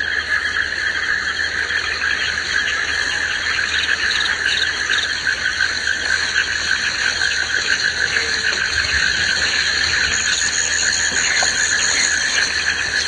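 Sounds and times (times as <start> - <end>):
insects and frogs calling: 0.0 - 13.0.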